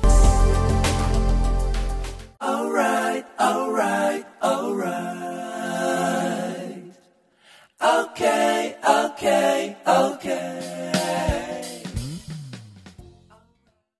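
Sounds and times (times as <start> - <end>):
person singing: 2.4 - 6.9.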